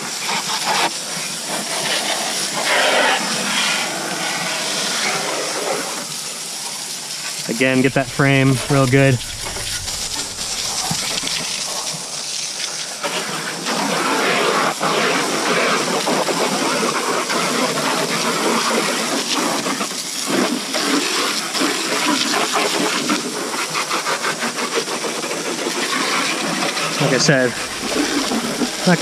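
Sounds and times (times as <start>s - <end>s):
hose water spraying on metal: 0.1s - 13.3s, 26.2s - 29.0s.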